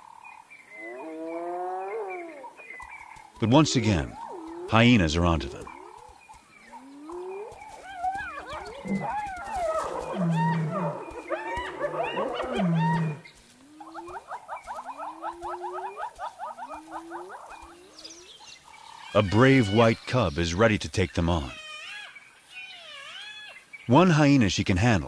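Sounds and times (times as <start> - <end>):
hyena growls: 0.8 - 2.7, 6.8 - 14.1
hyenas yelping and whooping: 0.8 - 2.8, 3.7 - 4.8, 5.5 - 19.9.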